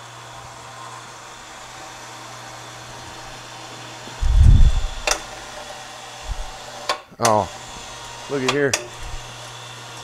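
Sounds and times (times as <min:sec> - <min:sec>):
electric hoist motor humming: 0:00.0 - 0:10.0
loud low thump: 0:04.2 - 0:05.1.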